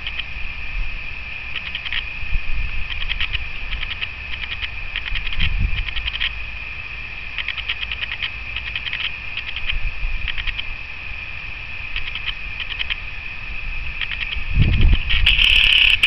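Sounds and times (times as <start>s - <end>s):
high-pitched chirping ticks: 0.0s - 0.3s, 1.5s - 2.1s, 2.8s - 6.4s, 7.3s - 10.8s, 11.9s - 13.2s, 13.9s - 16.0s
wind rumble on microphone: 0.0s - 16.0s.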